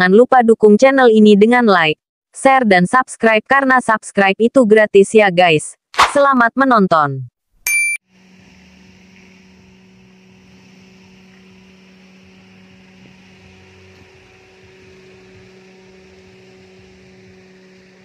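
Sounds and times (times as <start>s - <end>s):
faint high tone: 7.7s - 8.0s
light hiss: 8.2s - 18.0s
low electrical hum: 8.2s - 18.0s.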